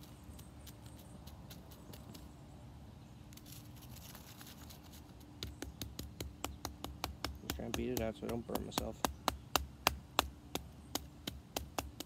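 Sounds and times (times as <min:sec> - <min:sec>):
stick knocking: 0:05.4 - 0:12.0.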